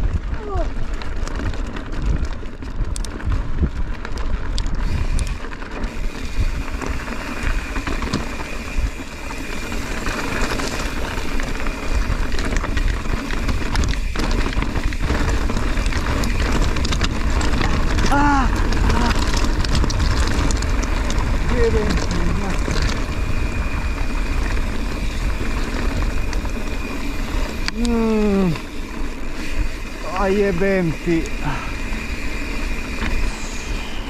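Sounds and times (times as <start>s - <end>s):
bike rattling clicks and knocks: 0.0s - 34.0s
wind rumbling on microphone: 0.0s - 34.0s
tyres on loose stone: 9.4s - 23.6s.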